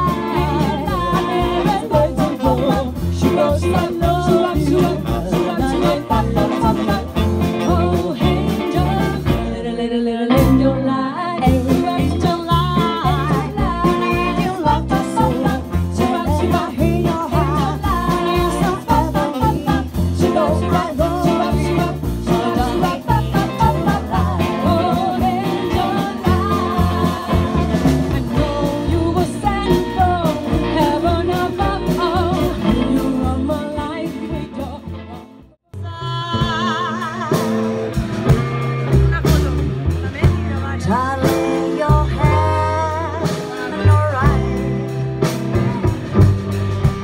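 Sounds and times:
women singing in harmony: 0.0s - 34.9s, 35.8s - 37.7s
woman singing with vibrato: 0.0s - 35.1s, 35.7s - 37.8s, 40.3s - 44.7s
retro pop band playing: 0.0s - 47.0s.

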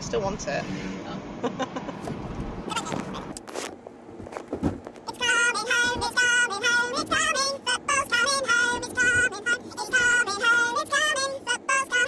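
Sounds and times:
car engine rumble: 0.0s - 12.0s
high-pitched singing over music: 5.1s - 12.0s.

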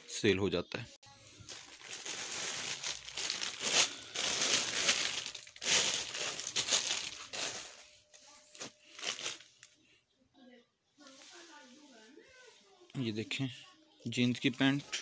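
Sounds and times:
plastic wrappers crinkling: 1.2s - 9.9s.

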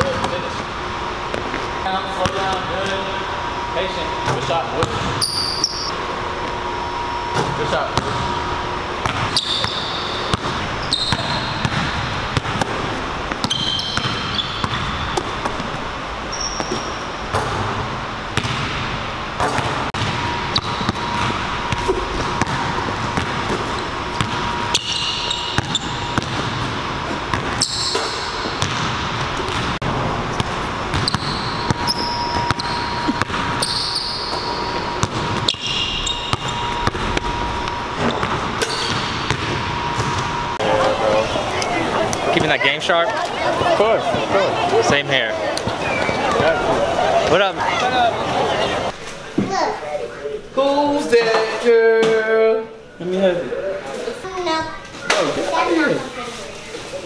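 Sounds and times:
sneakers squeaking: 0.0s - 50.4s
basketballs bouncing on hardwood: 18.4s - 18.8s, 25.6s - 26.7s, 28.5s - 29.8s, 30.4s - 35.7s, 38.0s - 40.3s.

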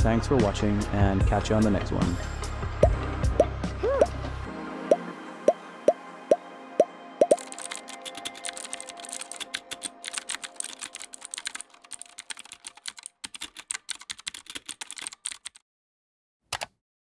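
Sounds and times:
rapid typing on keyboard: 7.2s - 15.6s.

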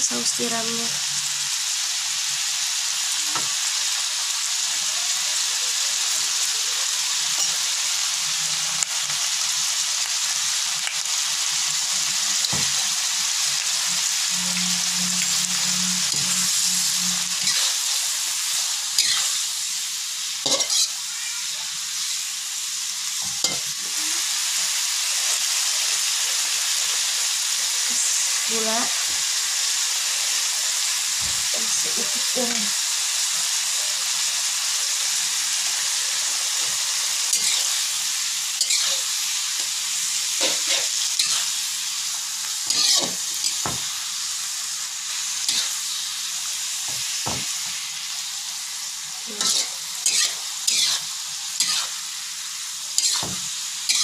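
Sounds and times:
greens sizzling in a wok: 0.0s - 54.0s
metal spatula scraping a pan: 14.3s - 19.5s, 20.4s - 21.0s, 36.6s - 37.9s, 38.6s - 39.7s, 40.3s - 41.6s, 42.6s - 43.9s, 45.1s - 46.1s, 49.3s - 52.0s, 53.0s - 54.0s.

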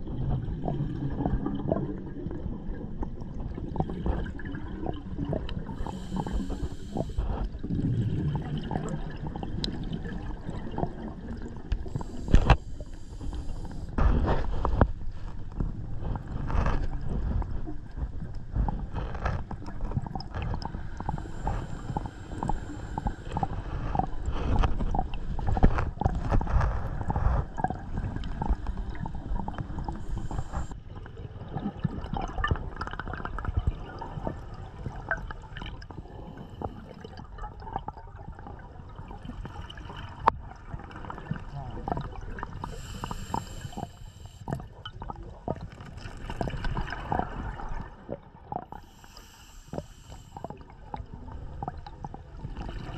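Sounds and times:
regulator bubbles gurgling: 0.0s - 52.9s
hissing inhales: 5.7s - 7.4s, 11.9s - 14.0s, 21.1s - 23.8s, 42.6s - 44.5s, 48.8s - 50.6s.

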